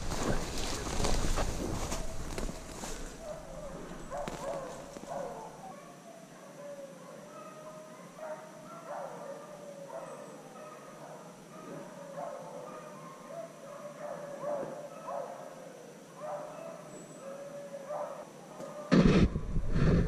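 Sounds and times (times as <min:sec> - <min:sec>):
beagles baying: 0:00.0 - 0:15.4.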